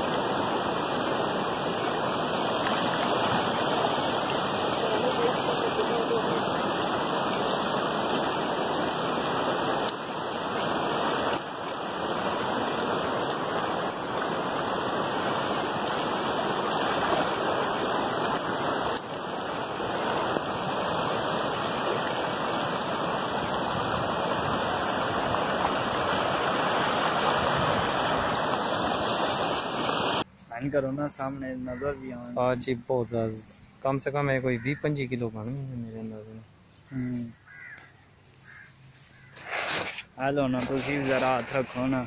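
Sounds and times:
river water rushing: 0.0 - 30.3.

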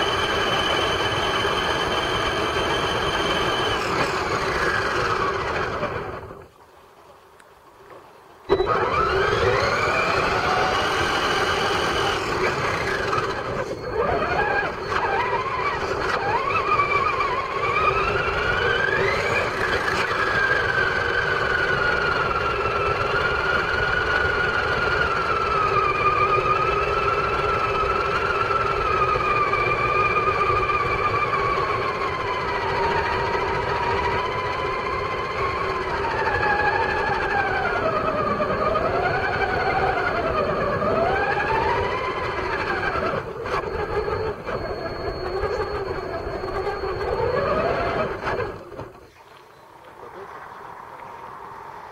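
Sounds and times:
toy truck motor whine: 0.0 - 6.4, 8.5 - 49.2
tyres on wet gravel: 47.2 - 51.9.

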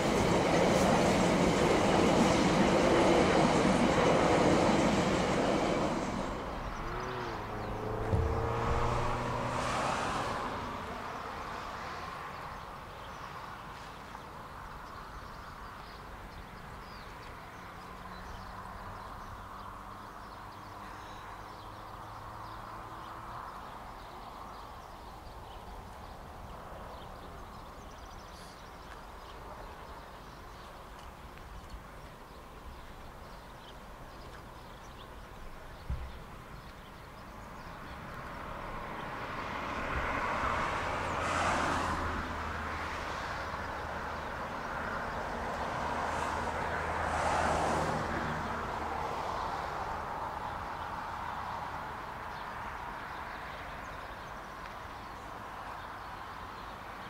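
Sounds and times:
steam train passing: 0.0 - 11.0
outdoor background: 0.0 - 57.0.

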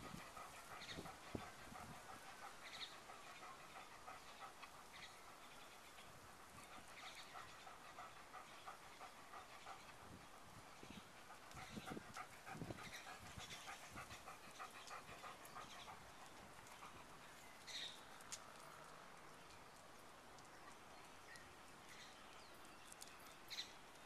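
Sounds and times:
dog panting: 0.0 - 18.6.

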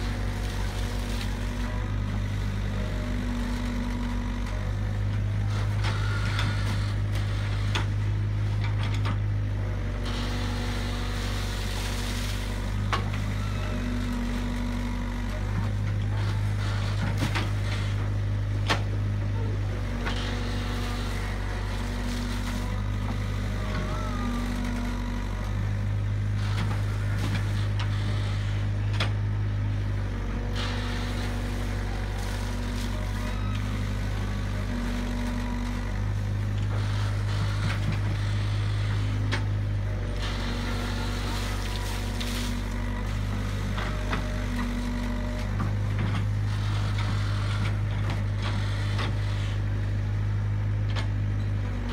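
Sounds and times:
excavator diesel engine running: 0.0 - 51.9.

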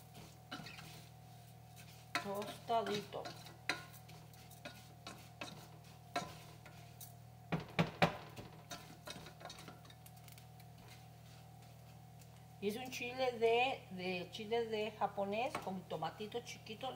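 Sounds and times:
spoon scraping a metal saucepan: 0.5 - 1.1, 1.8 - 6.8, 8.7 - 9.9.

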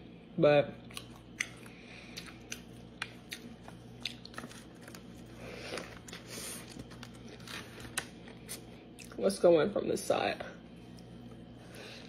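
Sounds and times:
person biting and chewing: 0.9 - 9.2.

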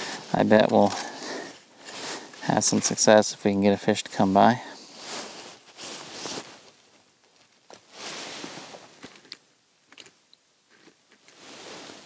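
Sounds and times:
clothing rustling: 0.0 - 3.1, 4.4 - 9.3, 10.7 - 12.0
soft hiss: 0.0 - 12.0.

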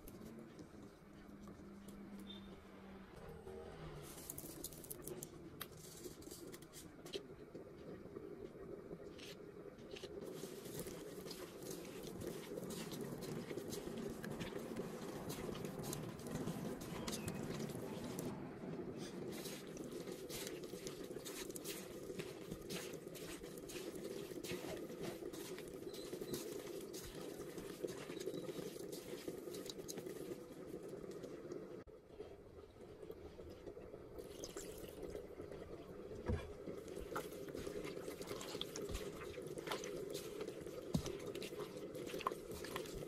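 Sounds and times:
wet squishing of meat: 9.2 - 31.4, 34.1 - 43.0
water pouring into a pot: 32.6 - 43.0.

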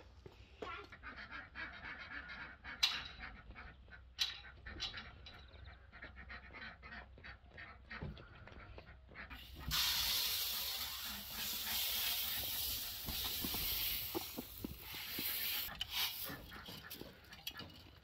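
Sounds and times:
light footsteps on stony ground: 0.0 - 1.3, 3.0 - 9.4
grain pouring onto metal trough: 9.4 - 16.6.

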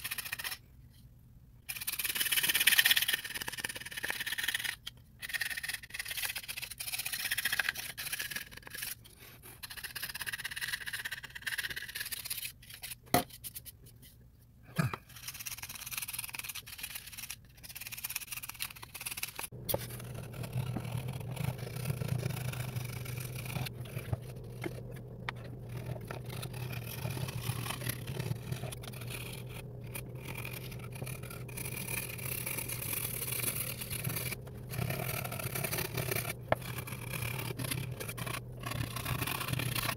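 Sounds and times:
knife scraping wood: 0.0 - 0.6, 14.8 - 39.9
low steady hum: 19.0 - 39.9.

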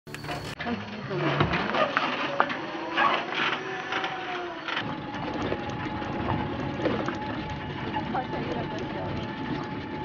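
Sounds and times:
electric motor whine: 0.1 - 10.0
heavy rumble: 4.8 - 10.0.

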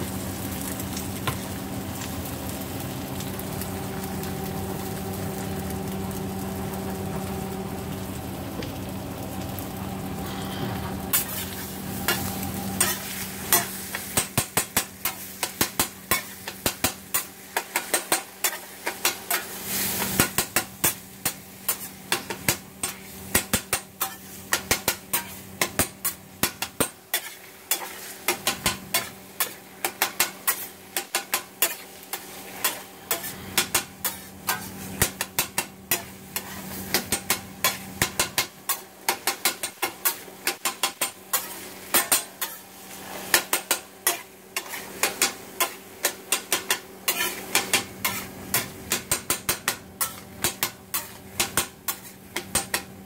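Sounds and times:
eggs sizzling: 0.0 - 53.0
metal spatula clacking on griddle: 12.1 - 42.6, 43.3 - 53.0.

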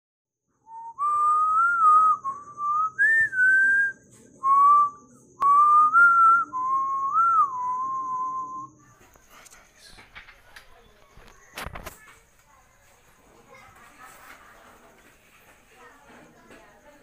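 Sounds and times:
person whistling a slow tune: 0.6 - 8.8.

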